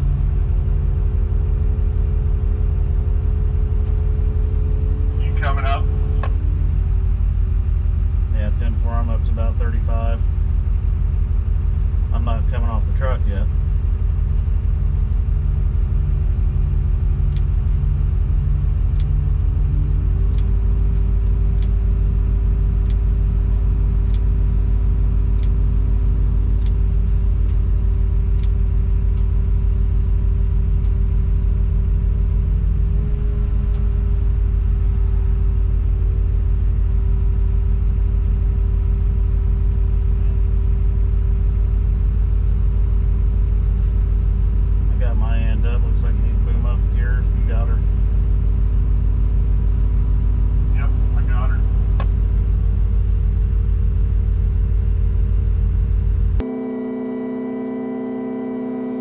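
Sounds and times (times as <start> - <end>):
hydraulic whine: 0.0 - 16.2, 56.1 - 59.0
diesel engine running under load: 0.0 - 59.0.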